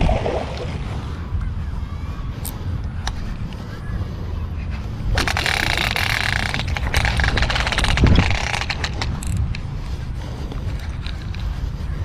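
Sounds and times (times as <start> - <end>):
low wind rumble on microphone: 0.0 - 12.0
fishing reel whirring: 5.0 - 11.8.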